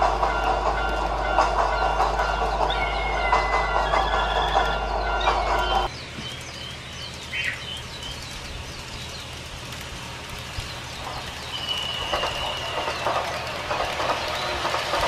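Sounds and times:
birds chirping: 0.0s - 15.0s
rattling rumble: 0.0s - 15.0s
long steady whistle: 11.6s - 13.7s.

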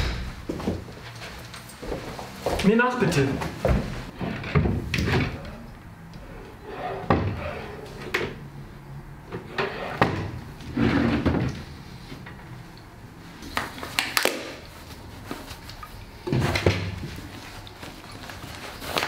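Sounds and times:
door opening and shutting: 4.1s - 5.6s, 6.2s - 8.4s.

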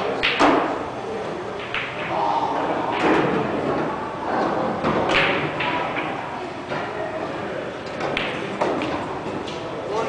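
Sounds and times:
low chatter: 0.0s - 10.0s
snooker balls clicking: 1.5s - 2.2s, 7.8s - 9.7s.

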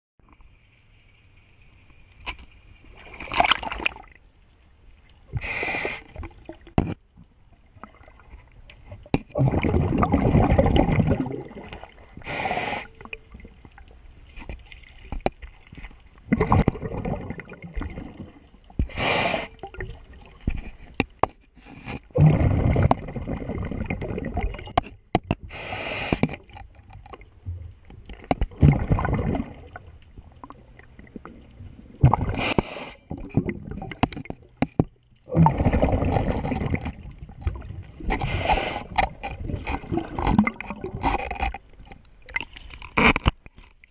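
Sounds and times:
regulator hiss on inhale: 5.3s - 6.2s, 12.2s - 13.0s, 18.8s - 19.6s, 25.5s - 26.4s, 32.4s - 33.1s, 38.2s - 39.0s
bubbling rush of exhaled air: 9.3s - 12.8s, 16.3s - 19.9s, 22.1s - 24.6s, 28.6s - 29.9s, 31.2s - 34.0s, 35.3s - 41.0s.

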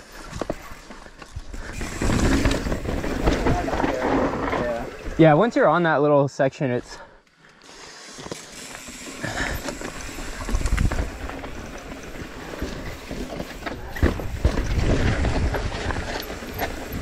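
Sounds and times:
bike tyres rumbling on dirt: 0.0s - 5.8s, 8.4s - 17.0s
bike knocks and rattles: 0.3s - 5.2s, 9.3s - 17.0s
wind buffeting microphone: 13.8s - 17.0s.

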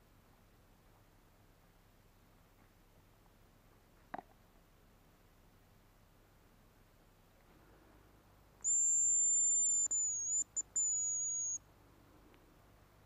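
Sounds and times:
high thin decoy whistle: 8.6s - 11.6s.

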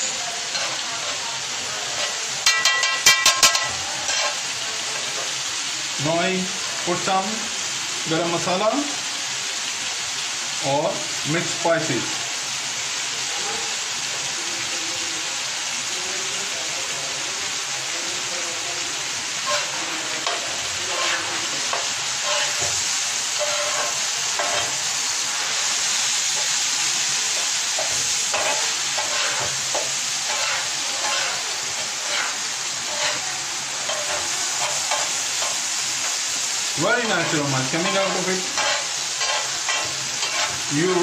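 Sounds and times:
spatula scraping a griddle: 0.0s - 5.4s, 19.4s - 36.2s, 36.9s - 41.0s
chicken sizzling in oil: 0.0s - 41.0s.

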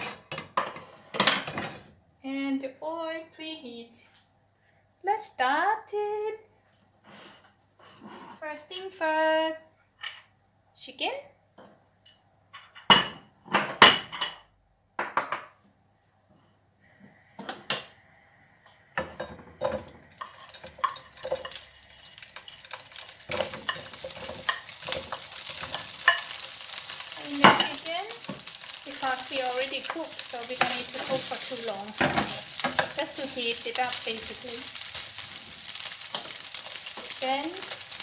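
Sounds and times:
chicken sizzling in frying pan: 16.8s - 38.0s
wooden spoon scraping pan: 19.6s - 35.0s
plate and wooden spoon clinking: 23.3s - 28.5s.

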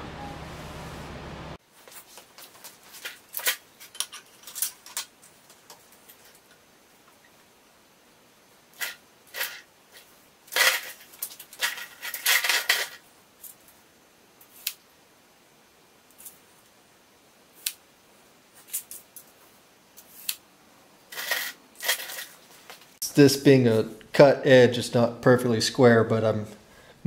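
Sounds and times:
tape measure rasping on metal: 21.1s - 22.3s.

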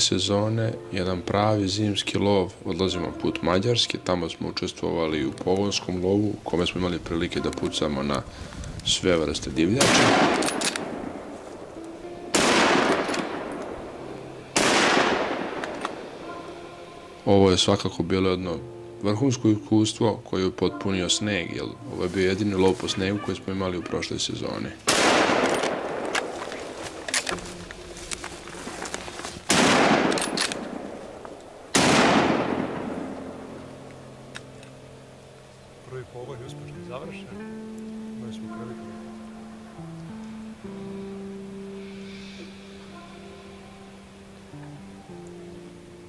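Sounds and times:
rifle shots echoing: 9.7s - 11.7s, 12.3s - 16.4s, 24.8s - 27.3s, 29.5s - 33.6s.

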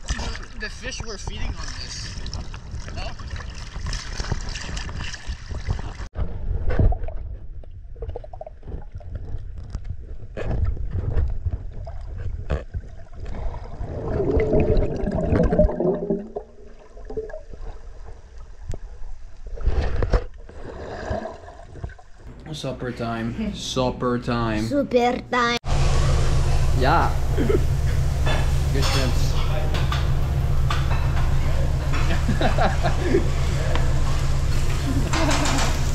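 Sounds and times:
underwater moving water rumble: 1.0s - 22.3s, 25.7s - 35.9s
water gurgling: 7.9s - 22.3s.

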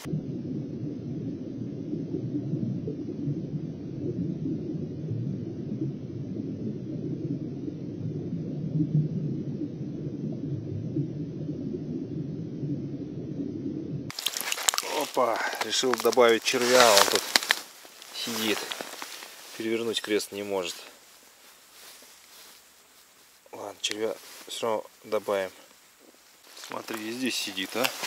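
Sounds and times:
muffled underwater rumble: 0.0s - 14.1s.

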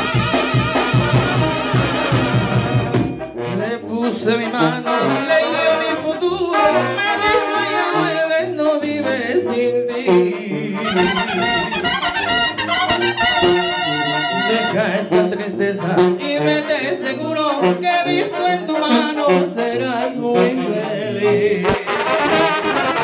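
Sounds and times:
drums: 0.0s - 3.4s
brass band horns: 0.0s - 23.0s.

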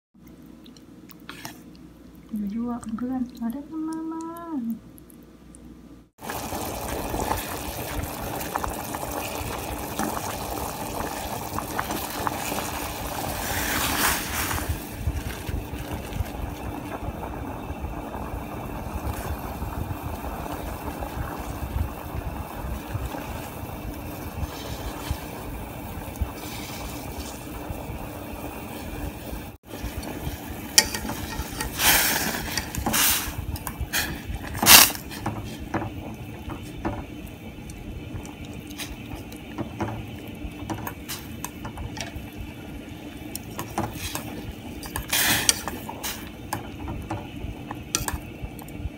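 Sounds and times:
water boiling in pot: 0.2s - 5.1s, 6.1s - 48.9s
chopsticks stirring noodles: 30.7s - 37.1s, 43.3s - 48.8s.

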